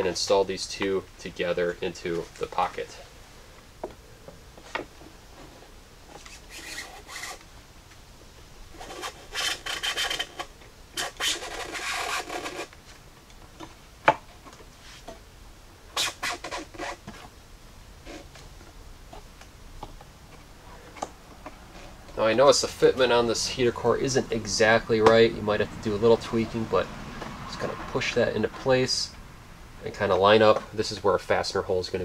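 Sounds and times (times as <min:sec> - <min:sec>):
foam seal scraping against plastic box: 0:08.8 - 0:12.7.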